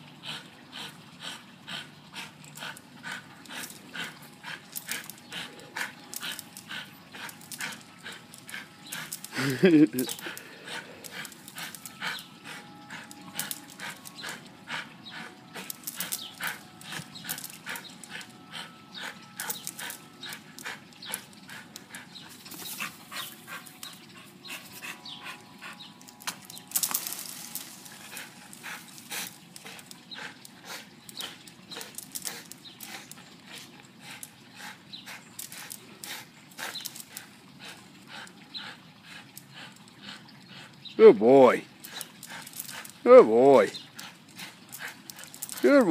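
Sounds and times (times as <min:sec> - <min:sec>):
dog gripping and shaking rope: 0:02.4 - 0:14.4, 0:15.0 - 0:25.0, 0:26.1 - 0:34.4, 0:41.8 - 0:45.9.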